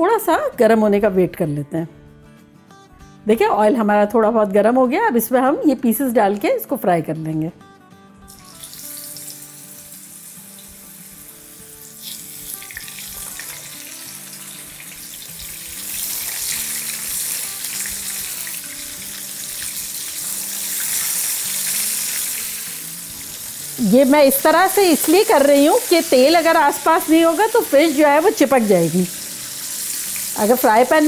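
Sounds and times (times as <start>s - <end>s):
fish sizzling in hot oil: 8.3s - 31.0s.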